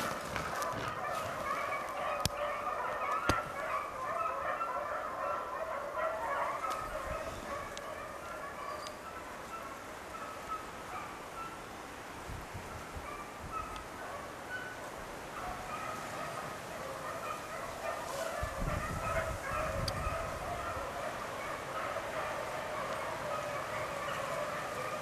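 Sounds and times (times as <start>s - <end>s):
beagles baying in the distance: 0.0s - 25.0s.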